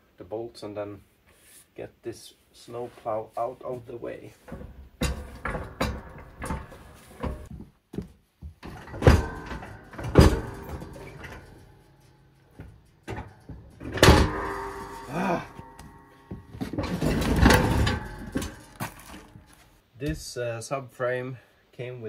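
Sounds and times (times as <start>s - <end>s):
heavy ringing metal clangs: 4.5s - 7.5s, 8.7s - 19.6s.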